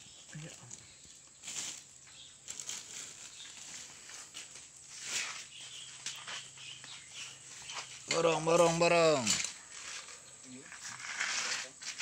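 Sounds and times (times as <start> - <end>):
plastic bag rustling: 1.4 - 5.7.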